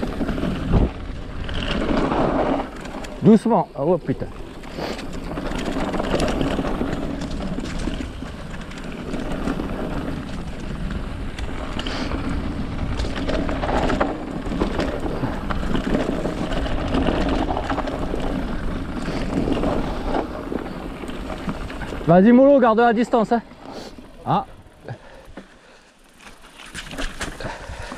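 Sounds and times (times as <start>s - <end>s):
wind on the microphone: 0.0s - 2.5s
bike clattering over stones: 0.0s - 23.6s, 25.0s - 27.9s
bike tyres rolling on dirt: 0.0s - 27.9s.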